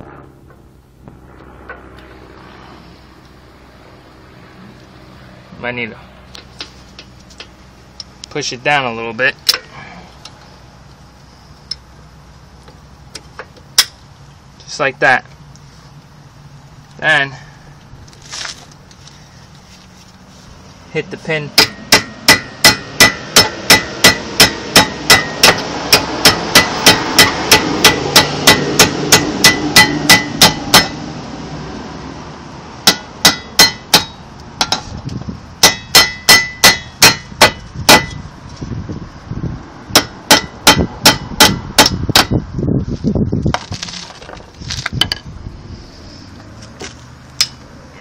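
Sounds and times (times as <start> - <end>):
hammer striking metal pin: 21.6 - 31.0, 32.8 - 34.9, 35.6 - 38.2, 39.9 - 42.4.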